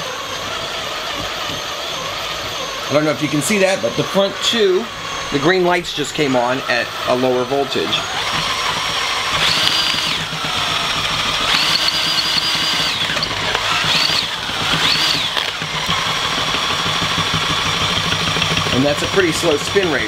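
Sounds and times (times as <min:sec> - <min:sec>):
motor spinning alternator whine: 0:00.0 - 0:20.0.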